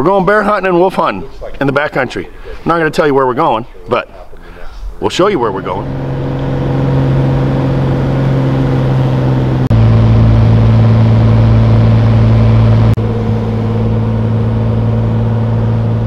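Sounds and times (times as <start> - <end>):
light aircraft engine drone: 5.5 - 16.0.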